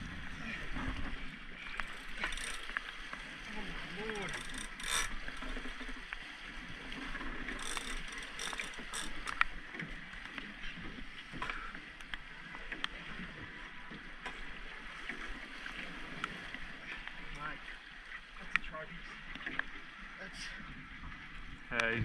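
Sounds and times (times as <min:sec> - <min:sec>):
sea water splashing against boat: 0:00.0 - 0:22.0
knocks and clicks on hull: 0:04.0 - 0:15.3.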